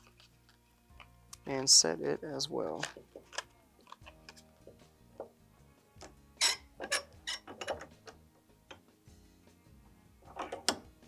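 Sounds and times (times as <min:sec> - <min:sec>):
faint background music: 0:00.0 - 0:11.0
bench vise clicking and clanking: 0:06.4 - 0:08.9, 0:10.2 - 0:10.9.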